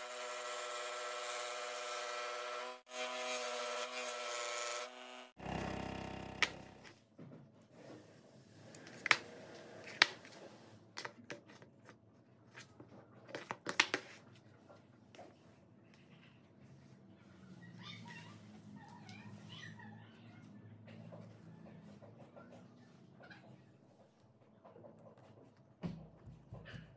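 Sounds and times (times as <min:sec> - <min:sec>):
scroll saw cutting plywood: 0:00.0 - 0:06.9.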